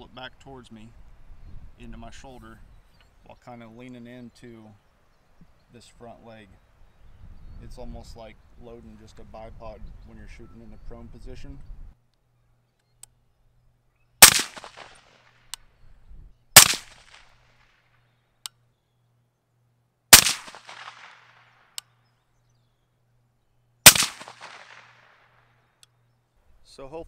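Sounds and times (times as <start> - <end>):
suppressed rifle shots: 14.2 - 15.4, 16.6 - 17.4, 20.1 - 21.6, 23.8 - 25.2
faint sharp clicks: 20.5 - 22.0.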